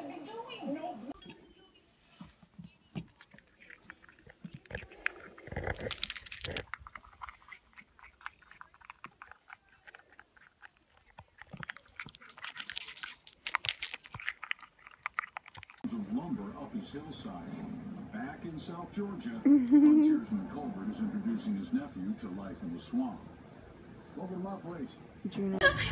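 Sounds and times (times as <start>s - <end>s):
squirrel gnawing nuts: 2.1s - 15.9s.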